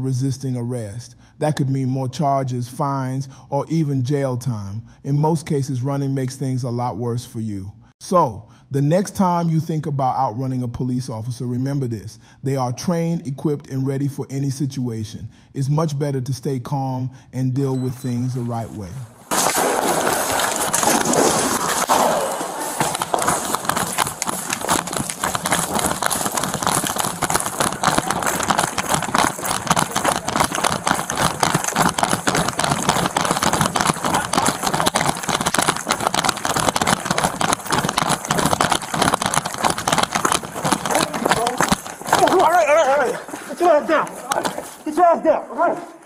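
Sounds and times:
fast running footsteps: 17.8 - 46.0
clothing rubbing on microphone: 18.3 - 44.9.

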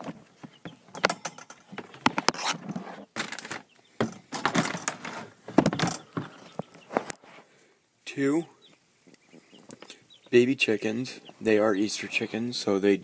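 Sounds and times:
rustling: 0.0 - 7.8.

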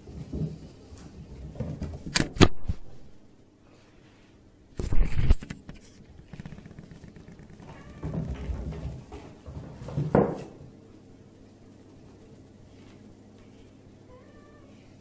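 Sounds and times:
cats scuffling on wooden floor: 5.2 - 10.7.

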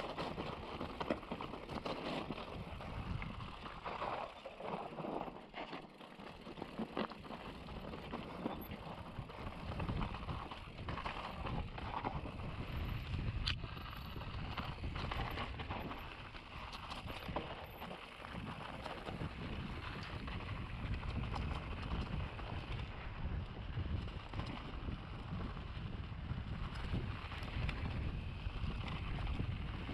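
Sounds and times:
bike chain and frame rattling: 6.0 - 29.9.

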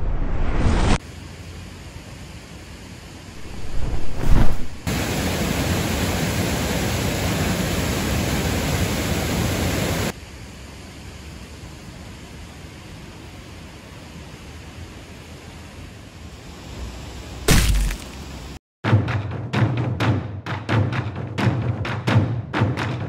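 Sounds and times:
rush of noise: 0.0 - 1.0, 3.4 - 10.2
waterfall rushing: 3.4 - 10.1.

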